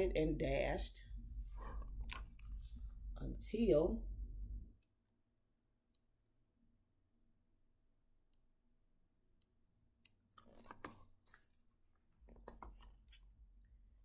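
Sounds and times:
book handling rustle: 10.4 - 11.7.

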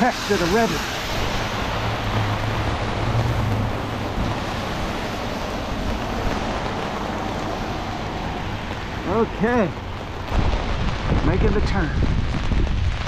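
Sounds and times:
rain on umbrella: 0.0 - 13.0
wind: 0.0 - 13.0
low rumble: 1.0 - 8.7.

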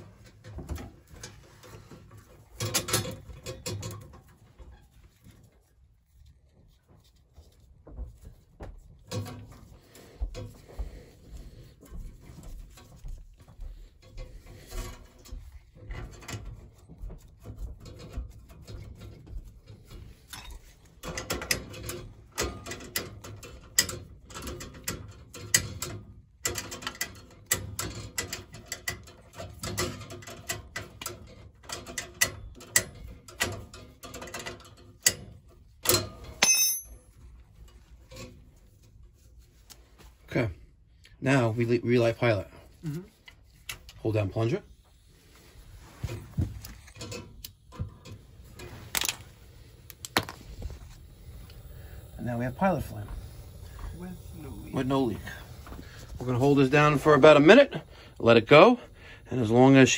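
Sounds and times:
wrench clicking and scraping on metal: 17.4 - 37.1, 46.6 - 50.4.

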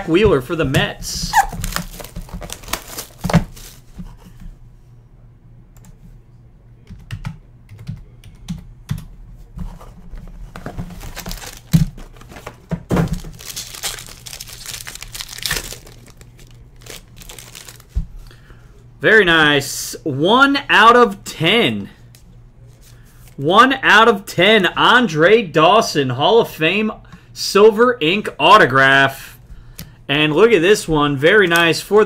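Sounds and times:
foil wrapper crinkling: 1.2 - 3.9, 10.6 - 12.5, 13.1 - 18.0
cardboard boxes clicking: 1.4 - 3.6, 10.5 - 17.8.

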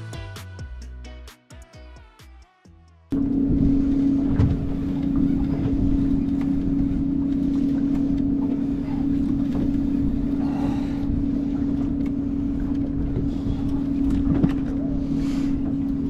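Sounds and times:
boat engine idling: 3.1 - 16.0
low rumbling wind: 3.1 - 16.0
water noise: 3.2 - 16.0.

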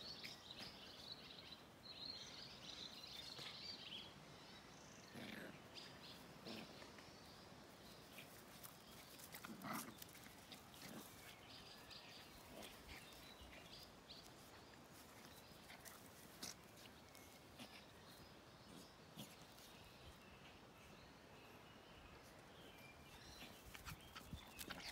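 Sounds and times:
faint puppy noises: 4.8 - 19.8.

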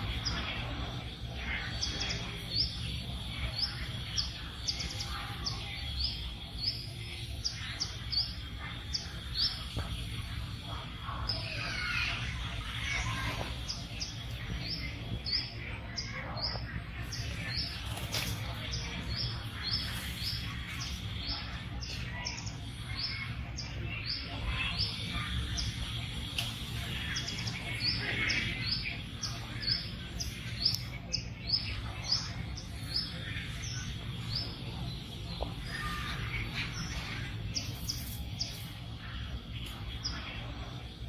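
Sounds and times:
low background hum: 0.0 - 41.0.

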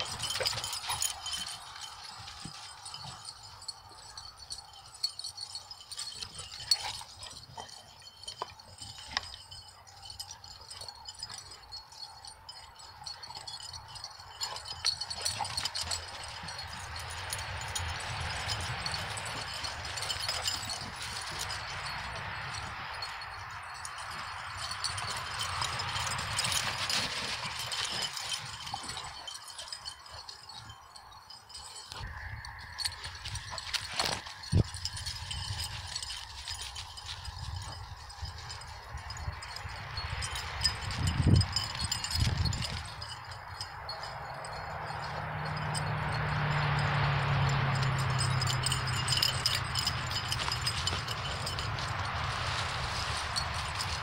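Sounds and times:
small clicks and rattles: 0.0 - 32.0
dog tags jingling: 0.0 - 54.0
footsteps crunching on snow and leaves: 48.9 - 54.0.

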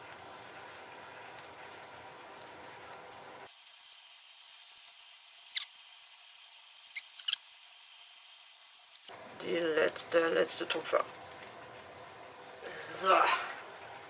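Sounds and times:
piping bag squeaks: 4.6 - 5.8, 6.9 - 7.5.

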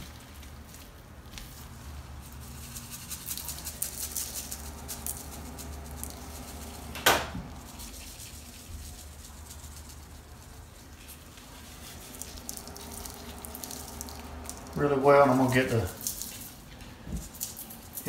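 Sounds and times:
low steady hum: 0.0 - 18.0
shaker bottle rattling: 2.3 - 6.9.

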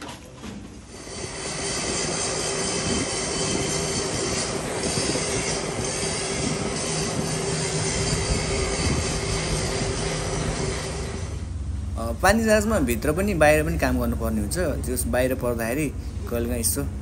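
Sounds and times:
mechanical rushing with whining tones: 0.8 - 17.0.

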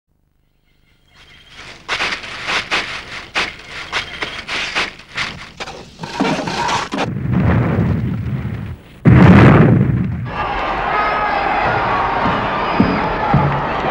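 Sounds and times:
heavy blast with low rumble: 7.0 - 10.4
gunshots: 9.0 - 10.3.

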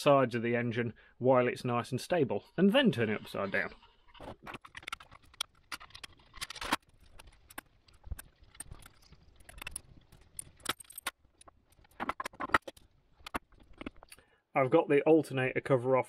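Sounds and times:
tools rattling: 4.3 - 14.2.

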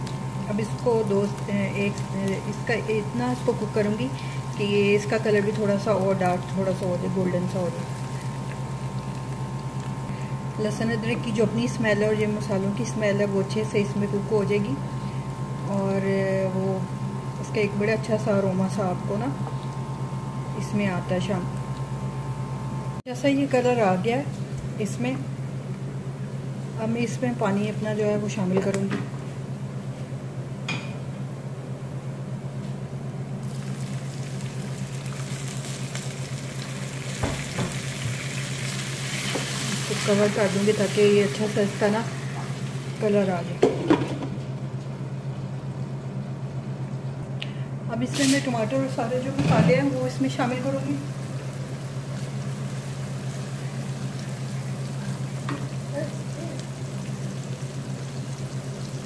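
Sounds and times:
onions sizzling in oil: 0.0 - 11.7, 33.4 - 43.3, 50.2 - 59.0
steady low hum: 0.0 - 59.0.

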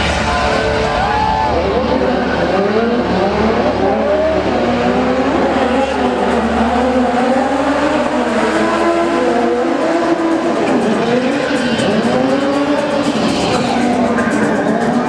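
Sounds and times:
car engines revving: 0.0 - 15.0.

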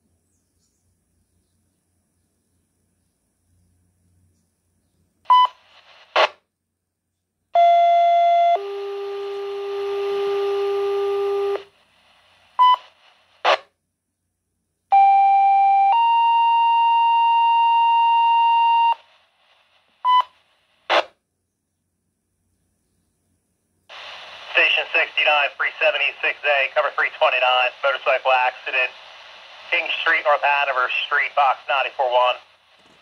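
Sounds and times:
two-tone paging tones from radio: 5.3 - 5.6, 12.6 - 12.9, 14.9 - 19.1, 20.0 - 21.0
radio squelch noise bursts: 23.9 - 33.0.

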